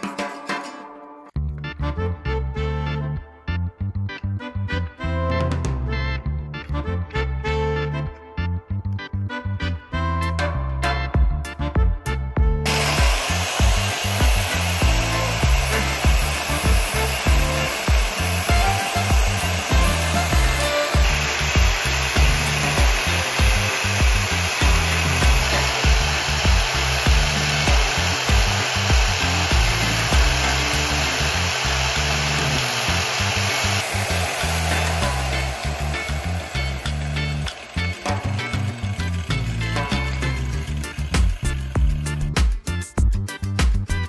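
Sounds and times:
music with bass beat: 1.4s - 44.0s
angle grinder grinding knife: 12.7s - 42.4s.

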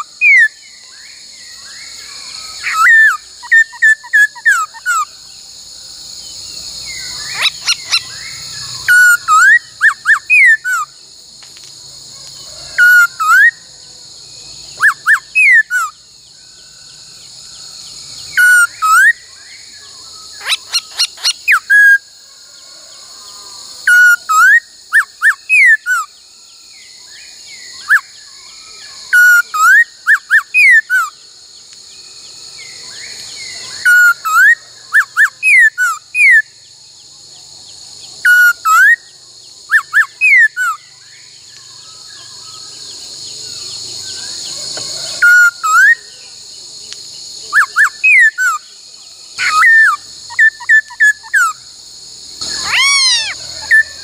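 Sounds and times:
bird whistling phrases: 2.1s - 5.1s, 7.1s - 10.9s, 14.8s - 15.9s, 20.4s - 22.0s, 47.5s - 48.6s, 49.4s - 51.6s, 52.4s - 54.0s.

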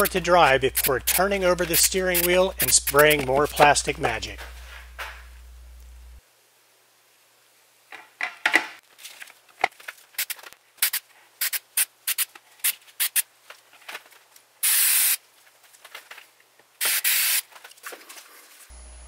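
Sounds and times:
aerosol spray can hissing: 0.0s - 3.3s, 10.2s - 13.2s, 14.6s - 15.2s, 16.8s - 17.4s
handling clicks and knocks: 7.9s - 8.8s.

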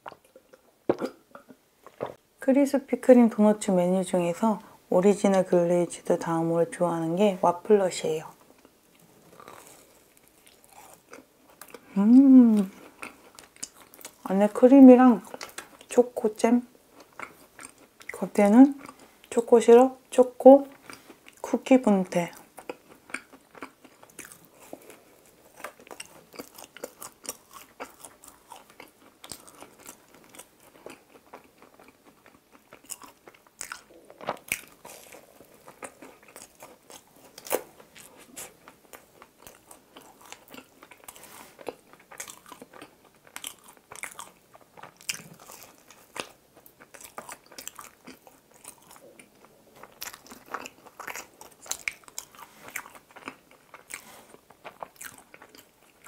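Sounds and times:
biting and chewing doughnut: 8.6s - 11.9s, 22.3s - 56.0s.

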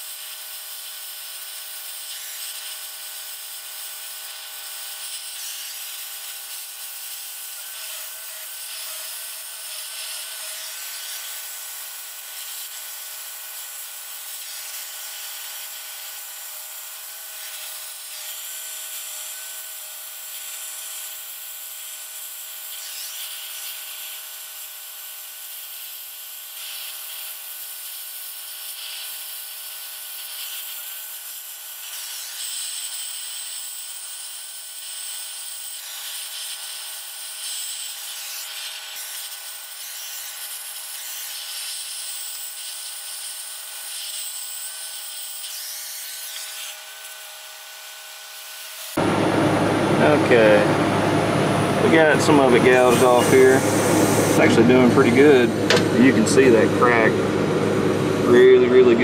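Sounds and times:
gouging torch hissing: 51.4s - 57.4s.

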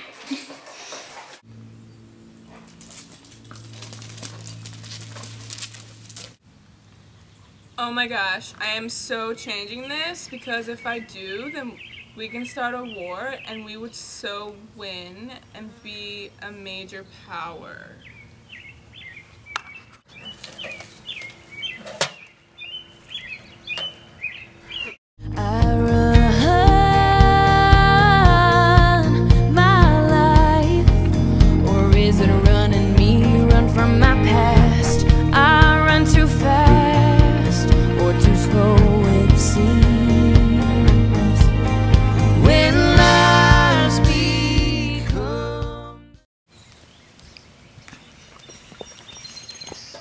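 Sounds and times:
steady low hum: 1.5s - 7.2s
small birds chirping: 9.2s - 25.0s, 46.5s - 50.0s.

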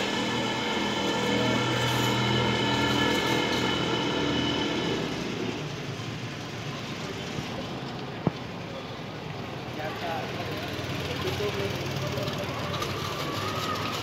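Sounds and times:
vehicle engine running: 0.0s - 7.3s
street noise: 0.0s - 14.0s.

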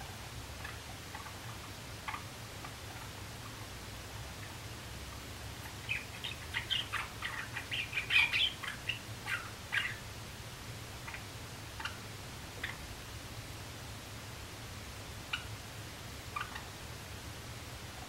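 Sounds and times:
sparrow singing clicking chips: 5.7s - 10.0s.

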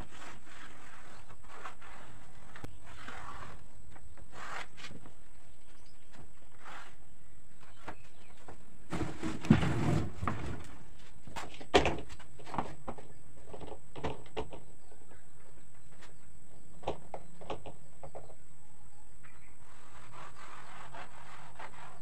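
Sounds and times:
plastic pipe scraping on plywood: 0.0s - 5.2s, 7.7s - 13.0s, 19.6s - 22.0s.

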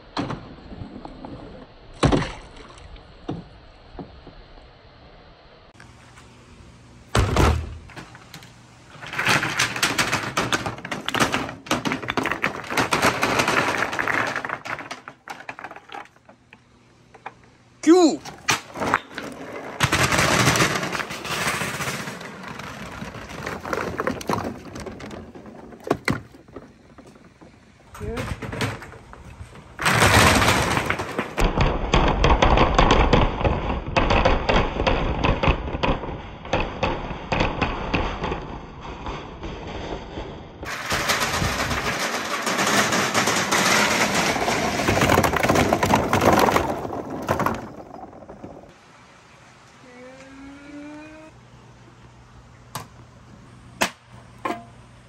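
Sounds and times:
plastic balls clattering down a chute: 8.9s - 16.2s, 18.6s - 36.1s, 40.6s - 48.7s
marbles clattering down a board: 9.0s - 16.2s, 40.6s - 48.7s.

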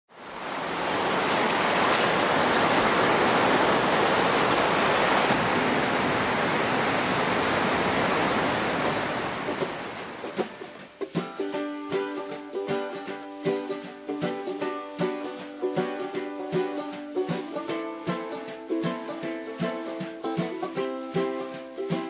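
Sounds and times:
surf washing on a beach: 0.1s - 11.3s.

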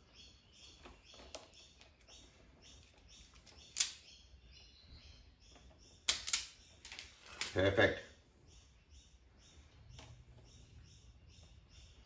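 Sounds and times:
handling wire stripper: 6.1s - 7.6s.

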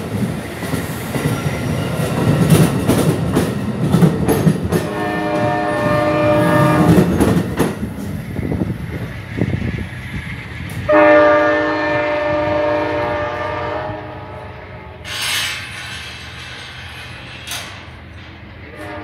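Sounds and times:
train rumbling: 0.0s - 19.0s
train horn chord: 4.8s - 7.1s, 10.9s - 15.0s, 18.7s - 19.0s.

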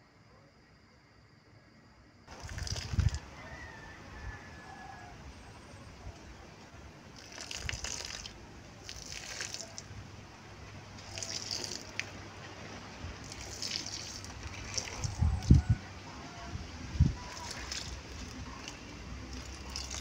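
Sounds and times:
water splashing onto soil: 2.3s - 3.3s, 7.1s - 10.0s, 10.7s - 15.6s, 17.0s - 20.0s.

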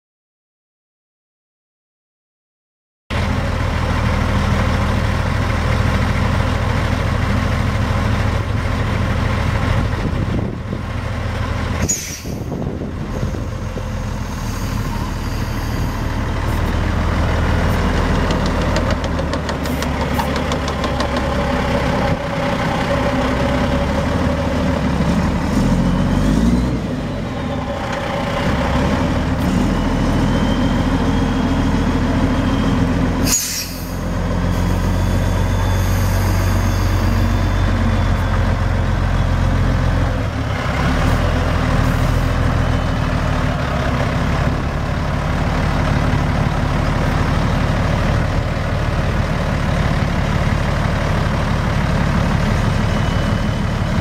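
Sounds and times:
diesel truck engine running: 3.1s - 54.0s.

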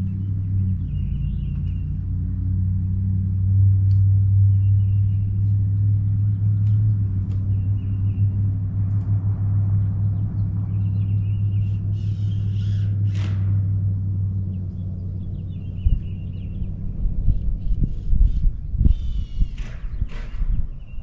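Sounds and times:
machine engine drone: 0.0s - 21.0s
light ticks: 3.8s - 4.1s, 6.4s - 7.6s.

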